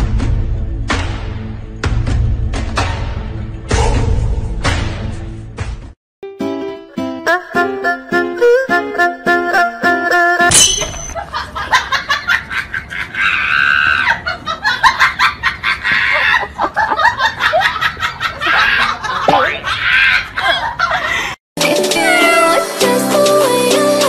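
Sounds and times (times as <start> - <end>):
person laughing: 15.6 - 21.3.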